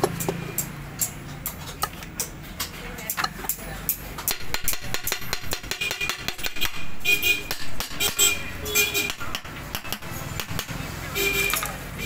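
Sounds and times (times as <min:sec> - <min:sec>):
metal clicks and knocks: 0:00.0 - 0:06.8
vehicle horn honks: 0:07.0 - 0:09.3, 0:11.1 - 0:12.0.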